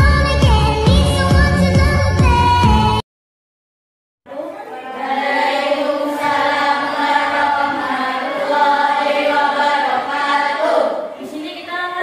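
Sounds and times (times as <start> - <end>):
voices chanting in unison: 4.3 - 11.2.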